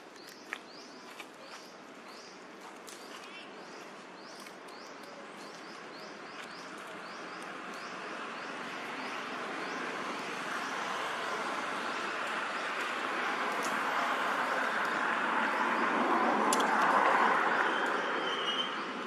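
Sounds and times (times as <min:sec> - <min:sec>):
bird chirping: 0:00.0 - 0:10.8.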